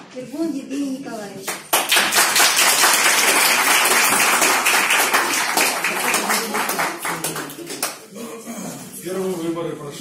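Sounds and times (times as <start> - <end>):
crowd applauding: 1.7 - 8.0.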